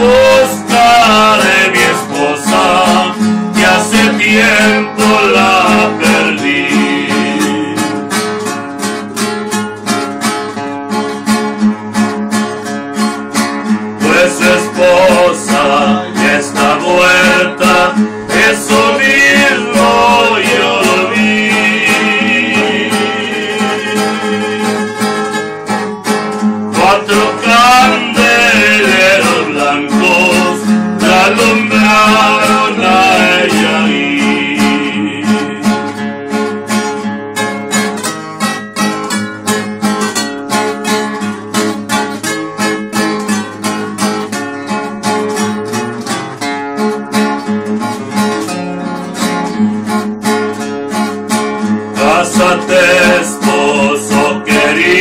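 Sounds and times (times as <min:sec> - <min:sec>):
two acoustic guitars playing: 0:00.0 - 0:55.0.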